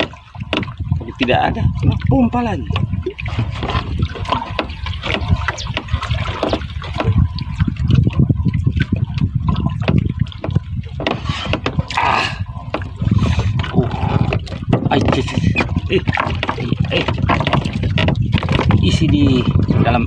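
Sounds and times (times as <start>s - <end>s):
water lapping against boat hull: 0.0s - 20.0s
knocks on boat hull: 9.8s - 11.8s, 14.3s - 18.8s.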